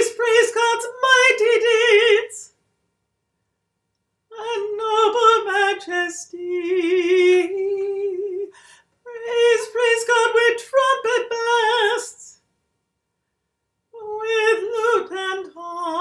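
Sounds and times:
woman chanting: 0:09.1 - 0:12.4, 0:14.0 - 0:16.0.

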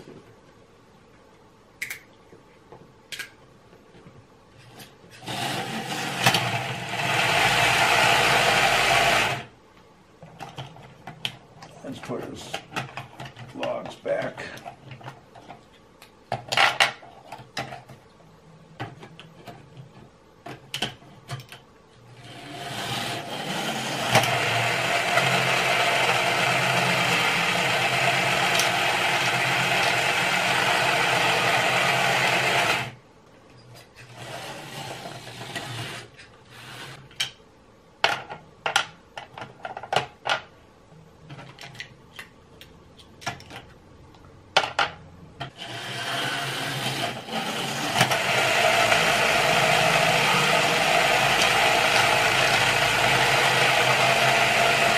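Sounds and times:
toy truck electric motor whirring: 0:22.2 - 0:33.0, 0:34.0 - 0:37.0, 0:45.5 - 0:54.9.

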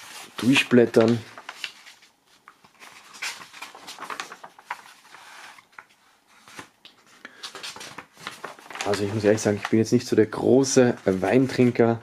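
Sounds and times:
newspaper pages rustling: 0:00.0 - 0:12.0.

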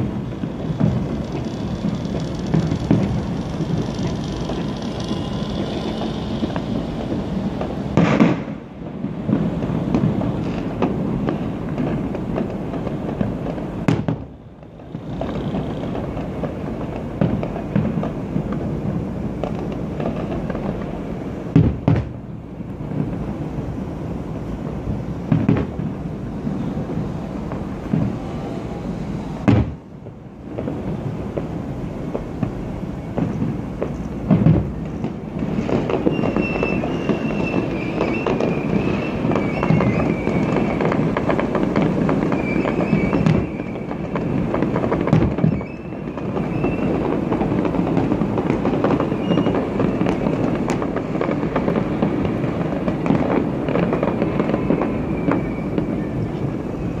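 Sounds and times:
fireworks bangs and crackling: 0:00.0 - 0:57.0
heavy firework booms: 0:00.0 - 0:57.0
wavering high whistle: 0:36.0 - 0:40.9, 0:42.2 - 0:44.0, 0:45.4 - 0:47.0, 0:49.0 - 0:50.4, 0:53.9 - 0:57.0.

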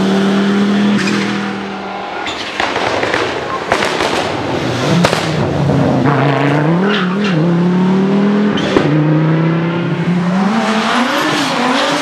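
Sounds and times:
rally car engine revving: 0:00.0 - 0:03.3, 0:03.9 - 0:12.0
exhaust crack: 0:02.2 - 0:06.6.

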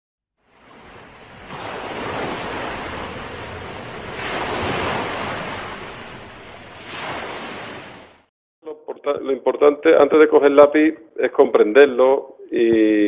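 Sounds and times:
waves washing in: 0:00.4 - 0:08.3.

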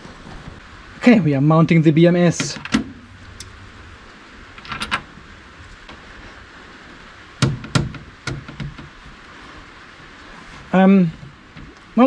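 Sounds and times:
box knocking on metal shelf: 0:07.4 - 0:08.8.

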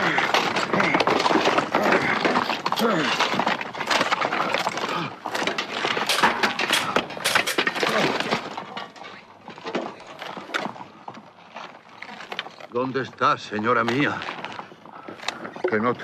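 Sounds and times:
plate armour clattering: 0:00.0 - 0:10.7.

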